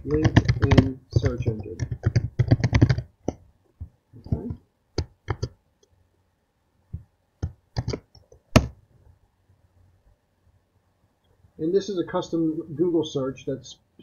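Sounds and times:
keyboard and mouse clicks: 0.0s - 3.4s, 4.2s - 5.9s, 7.0s - 8.8s.

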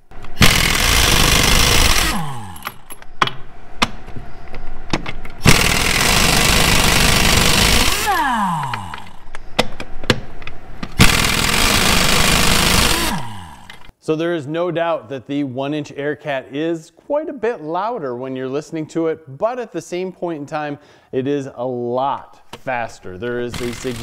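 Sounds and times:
pneumatic impact wrench hammering: 0.2s - 4.0s, 5.4s - 9.8s, 10.9s - 13.9s, 23.5s - 24.0s
air motor whining down: 0.3s - 2.9s, 5.4s - 9.3s, 11.0s - 13.9s.

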